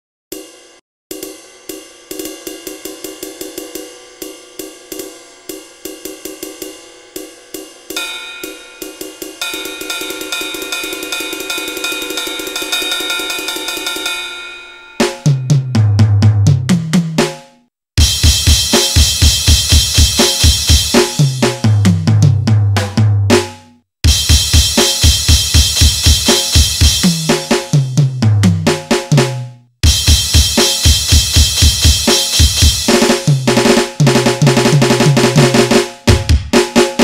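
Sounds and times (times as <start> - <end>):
ringing cymbals and hi-hat: 0.3 - 15.6, 18.0 - 21.6, 24.1 - 27.8, 29.8 - 33.8
crashing cymbal wash: 0.4 - 15.2
sampled drum hits: 7.9 - 37.0
deep heavy drum hits: 29.8 - 35.2, 36.1 - 36.6.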